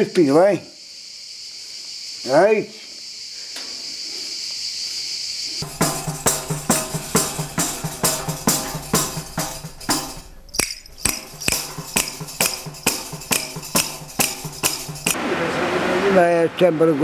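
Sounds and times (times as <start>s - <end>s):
frame drum with jingles beating: 5.6s - 15.2s
wooden castanets clacking: 5.6s - 15.2s.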